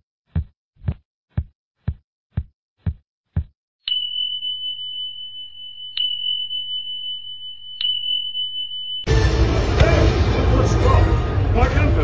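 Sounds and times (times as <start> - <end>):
high ringing tone: 3.8 - 9.4.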